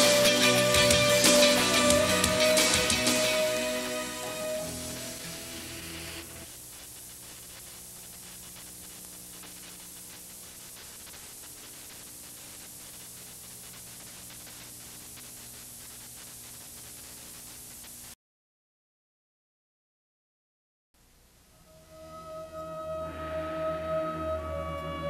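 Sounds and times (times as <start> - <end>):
closing music: 0.0 - 6.5, 21.6 - 25.0
tape playback hiss: 0.0 - 18.2, 21.0 - 25.0.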